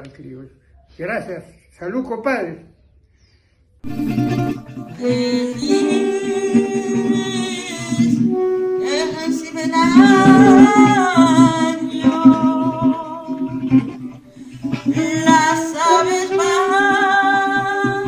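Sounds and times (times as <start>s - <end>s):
acoustic guitar: 3.8s - 18.0s
saxophone melody: 3.8s - 18.0s.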